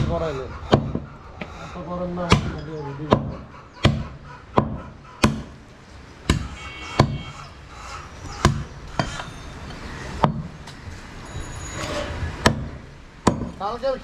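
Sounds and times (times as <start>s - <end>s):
cleaver chopping on wooden block: 0.0s - 1.1s, 2.2s - 5.6s, 6.2s - 7.3s, 8.4s - 9.2s, 12.4s - 13.6s.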